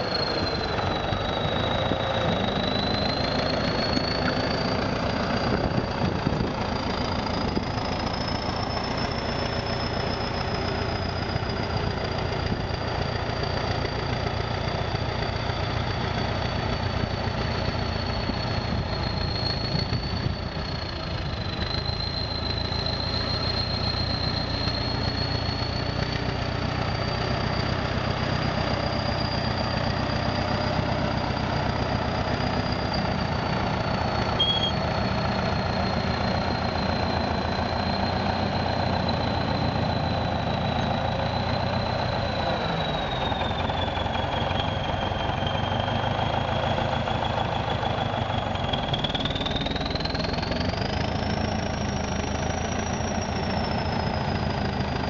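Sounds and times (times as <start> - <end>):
bulldozer diesel engine rumble: 0.0 - 55.0
thin high whine: 32.6 - 42.7.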